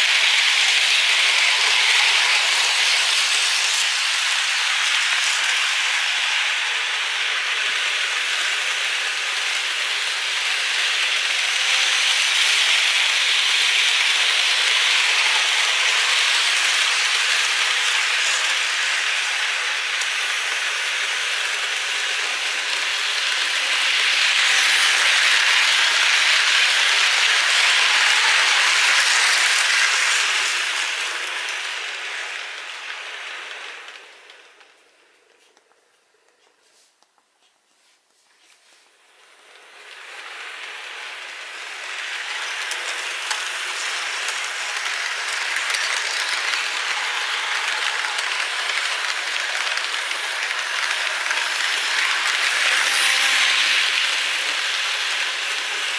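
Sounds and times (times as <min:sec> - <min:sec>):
model train rattling on track: 0:00.0 - 0:34.8, 0:39.3 - 0:55.9.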